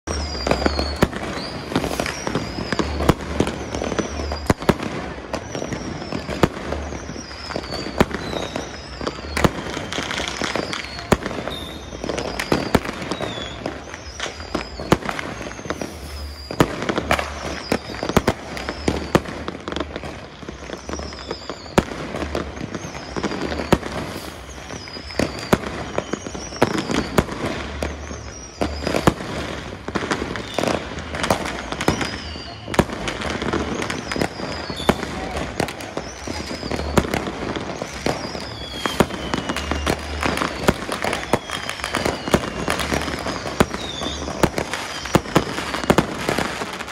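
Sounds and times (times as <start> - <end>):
falling firework whistles: 0.0 - 46.9
fireworks bangs and crackles: 0.0 - 46.9.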